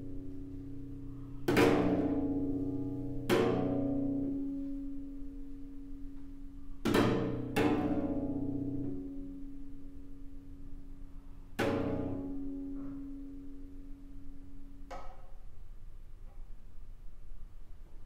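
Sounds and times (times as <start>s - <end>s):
cello strings struck with a stick: 0.0s - 5.4s, 6.1s - 9.7s, 11.5s - 13.8s, 14.6s - 15.4s.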